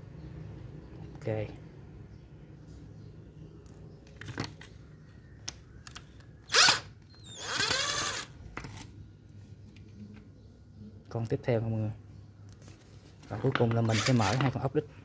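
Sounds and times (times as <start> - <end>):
power drill motor whine: 6.5 - 8.3.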